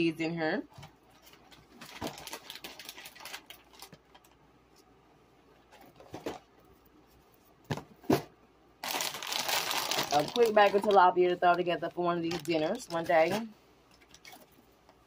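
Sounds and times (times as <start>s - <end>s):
plastic bags crinkling: 1.3s - 4.4s, 8.8s - 14.6s.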